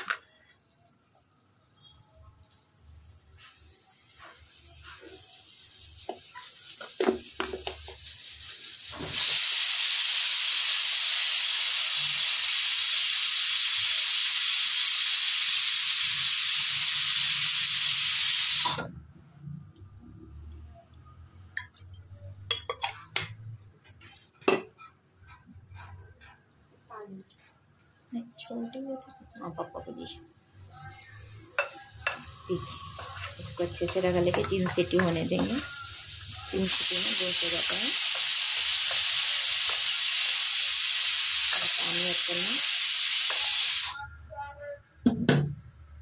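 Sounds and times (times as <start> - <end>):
steam hissing loudly: 4.1 - 18.9, 31.1 - 44.0.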